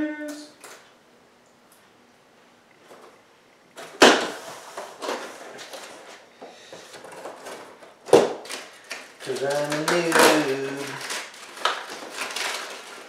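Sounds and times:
cardboard scraping and rustling: 0:03.8 - 0:08.6
loud sharp cardboard sounds: 0:03.8 - 0:13.0.

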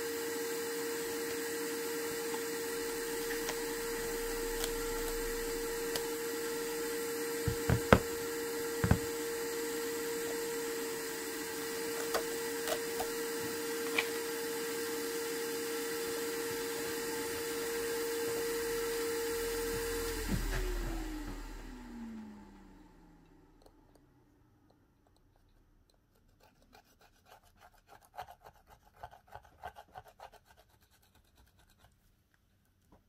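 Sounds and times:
electric motor humming: 0:00.0 - 0:23.3.

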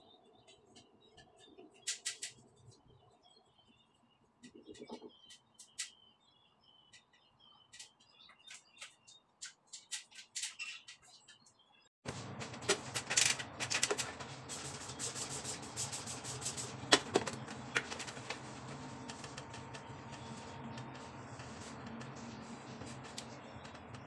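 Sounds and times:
cleaning items clicking and tapping: 0:07.7 - 0:11.2, 0:16.9 - 0:18.4
steady low hum: 0:12.1 - 0:24.0
spray bottle: 0:13.2 - 0:19.4.

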